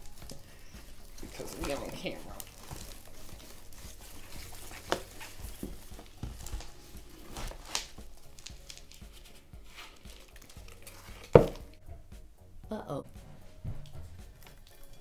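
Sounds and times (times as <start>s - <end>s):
soil pattering into plastic tub: 0.2s - 6.7s.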